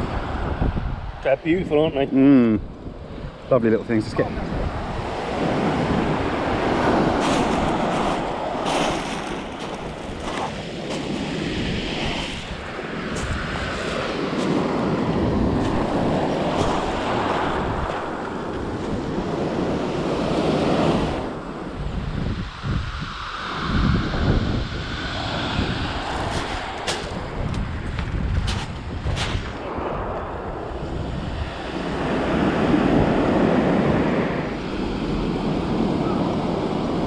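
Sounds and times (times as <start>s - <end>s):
wind buffeting microphone: 0.0s - 37.0s
waves breaking on shingle: 6.2s - 20.8s.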